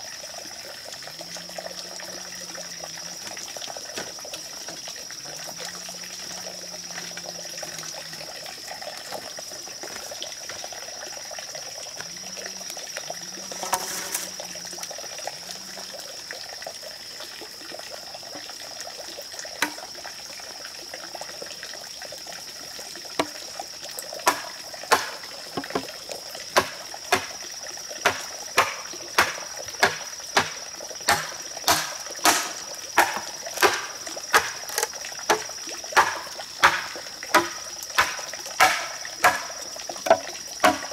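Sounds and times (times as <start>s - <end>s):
high insect drone: 0.0s - 40.9s
machete chopping bamboo: 19.6s - 19.8s, 24.2s - 25.8s, 26.6s - 27.4s, 28.0s - 40.9s.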